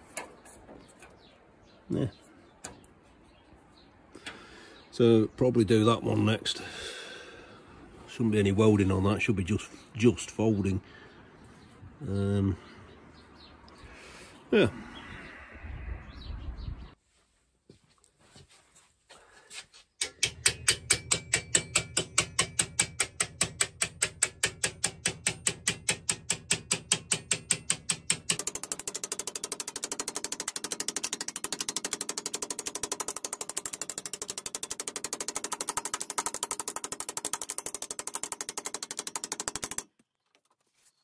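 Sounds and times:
hammer striking sheet metal: 20.0 - 33.3.

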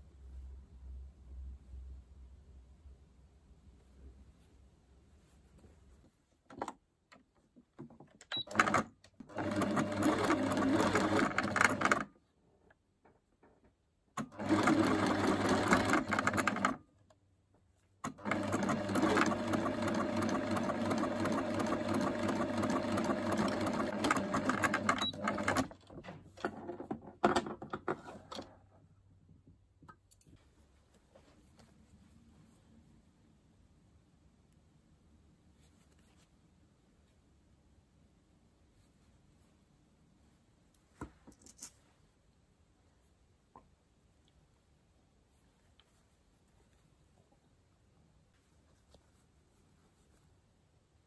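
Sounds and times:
electric sewing machine stitching: 8.5 - 12.0, 14.2 - 16.8, 18.1 - 25.8.

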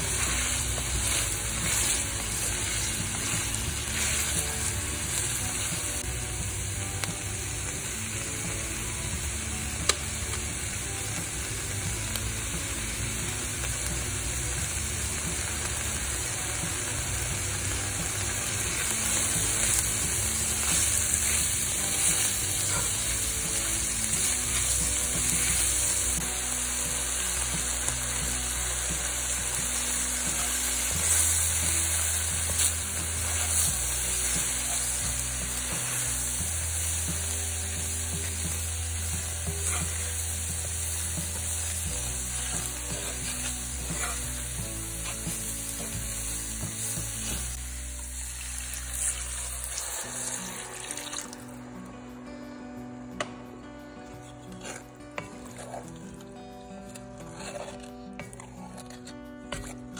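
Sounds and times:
wooden spoon stirring: 0.0 - 4.6
vegetables sizzling in a pan: 0.0 - 51.7
soft background music: 0.0 - 59.9.

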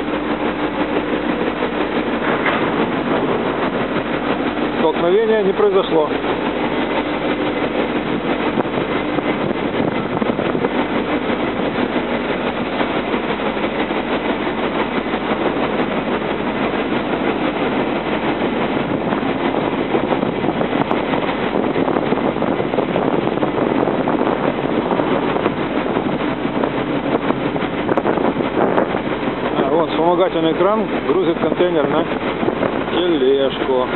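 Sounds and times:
wind: 0.0 - 33.9
machinery din: 1.5 - 12.7.

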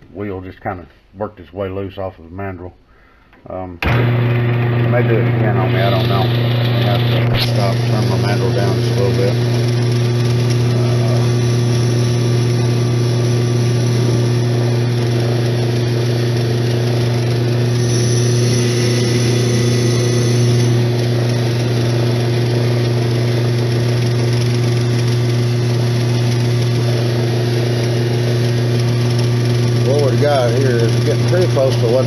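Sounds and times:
lathe motor humming: 3.8 - 32.0
rag polishing spinning handwheel: 5.8 - 32.0
faint high whine: 17.7 - 21.0.

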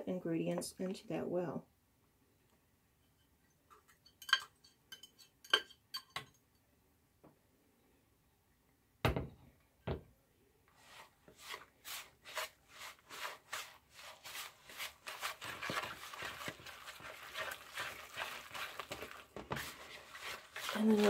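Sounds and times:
whisk scraping batter in bowl: 10.8 - 21.0.

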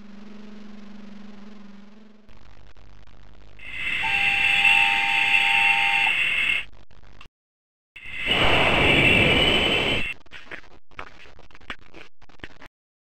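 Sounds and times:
rushing rumble: 8.0 - 10.8.

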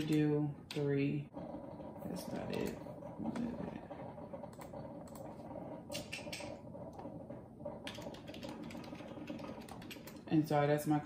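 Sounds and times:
coffee maker humming: 0.0 - 11.0
computer keyboard typing: 1.5 - 10.4.

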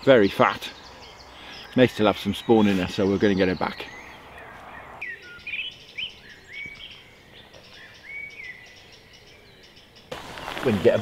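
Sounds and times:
songbirds chirping and whistling: 0.0 - 11.0
rustling: 10.1 - 11.0.

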